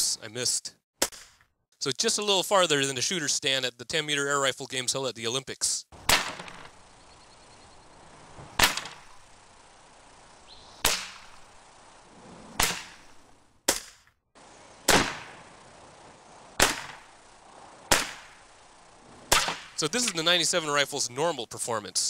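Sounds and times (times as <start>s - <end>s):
air rifle shots: 6.0s - 6.8s, 8.5s - 9.2s, 10.8s - 11.5s, 12.5s - 14.0s, 14.8s - 15.5s, 16.6s - 17.2s, 17.9s - 18.5s, 19.3s - 20.2s.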